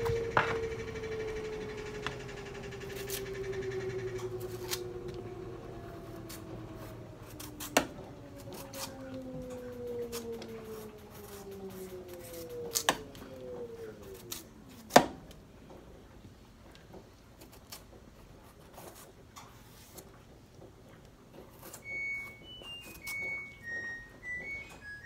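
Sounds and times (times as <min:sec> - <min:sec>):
machine hum winding down: 0:00.0 - 0:16.1, 0:21.8 - 0:25.0
knife cutting squash: 0:02.8 - 0:15.3, 0:17.4 - 0:20.1, 0:21.4 - 0:23.2.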